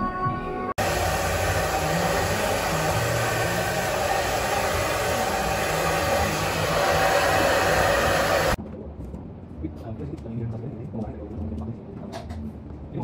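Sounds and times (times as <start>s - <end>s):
hair dryer blowing: 0.8s - 8.6s.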